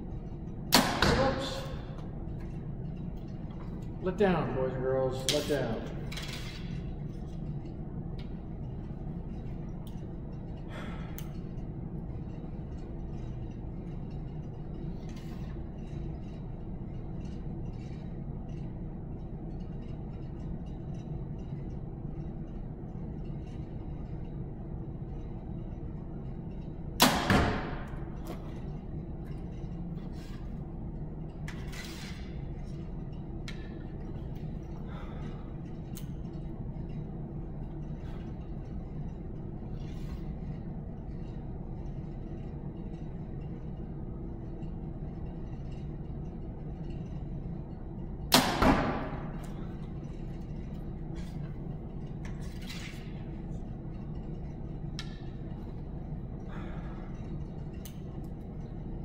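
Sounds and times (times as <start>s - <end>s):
steady low hum: 0.0s - 59.0s
arrow hitting target: 27.0s - 27.9s, 48.3s - 49.4s.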